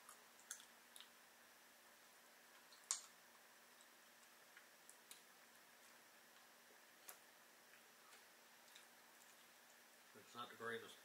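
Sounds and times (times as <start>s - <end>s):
faint clicks of eating: 0.0s - 1.2s, 2.5s - 9.8s
faint steady hum: 0.0s - 11.0s.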